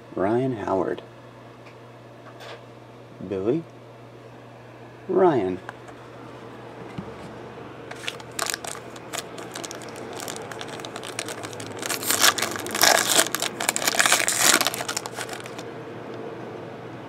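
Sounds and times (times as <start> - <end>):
foil wrapper crinkling: 7.9 - 15.6
wrapper being torn open: 7.9 - 15.6.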